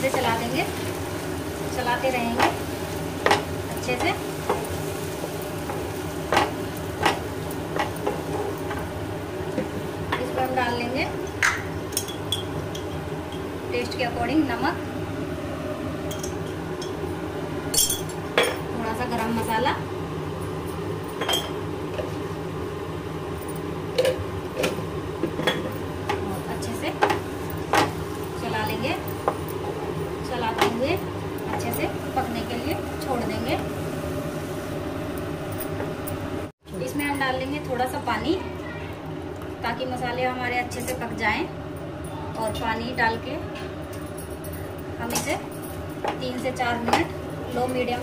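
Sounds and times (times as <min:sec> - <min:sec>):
food sizzling in frying pan: 0:00.0 - 0:36.6
low background hum: 0:00.0 - 0:48.0.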